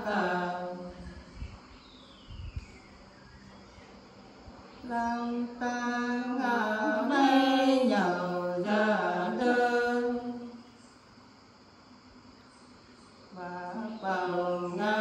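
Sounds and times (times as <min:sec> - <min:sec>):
women singing unaccompanied: 0:00.0 - 0:01.5, 0:04.8 - 0:10.7, 0:13.3 - 0:15.0.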